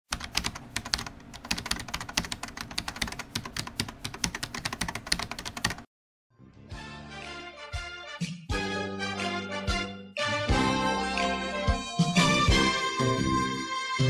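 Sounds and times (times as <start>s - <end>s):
keyboard typing clicks: 0.1s - 5.9s
music: 6.3s - 14.0s.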